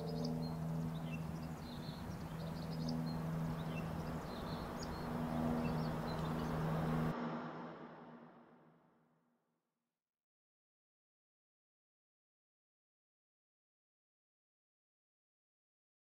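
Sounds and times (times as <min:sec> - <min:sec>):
birds chirping: 0:00.0 - 0:07.1
low hum and rumble: 0:00.0 - 0:08.8.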